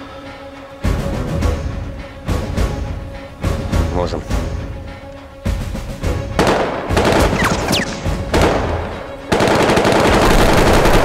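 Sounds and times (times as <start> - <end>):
dramatic film music: 0.0 - 11.0
gunshots: 6.4 - 11.0.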